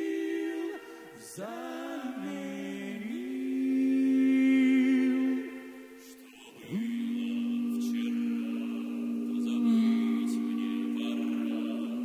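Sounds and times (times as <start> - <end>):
vocal group singing in harmony: 0.0 - 12.0.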